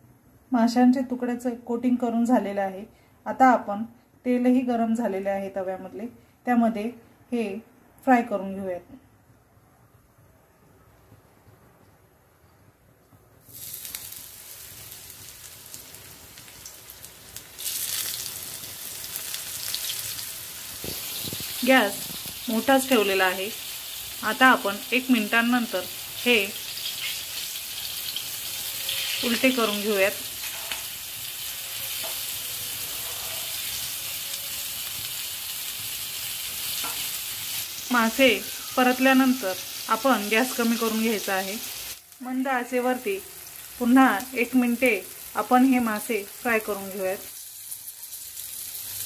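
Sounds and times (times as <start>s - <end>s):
fish sizzling in hot oil: 13.4s - 49.0s
spatula turning food: 26.0s - 34.7s, 35.7s - 37.8s.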